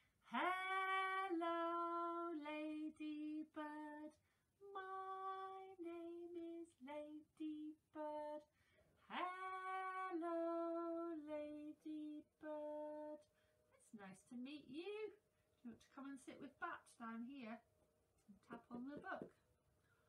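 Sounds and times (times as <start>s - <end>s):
woman singing unaccompanied: 0.2s - 8.5s, 9.1s - 13.3s.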